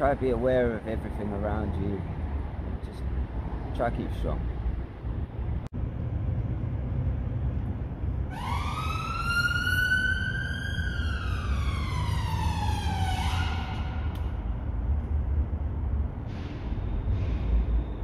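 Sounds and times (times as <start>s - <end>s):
steady low rumble: 2.0s - 8.4s, 12.7s - 18.0s
emergency vehicle siren wailing: 8.2s - 14.6s.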